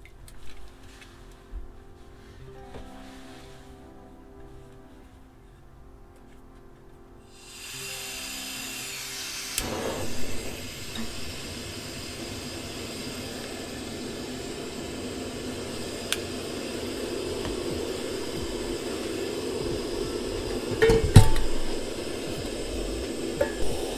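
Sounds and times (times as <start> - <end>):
burner running: 7.3 - 23.9
gas hissing: 7.3 - 23.9
gas lighting with soft burst: 7.3 - 23.9
stove igniter click: 16.0 - 16.3.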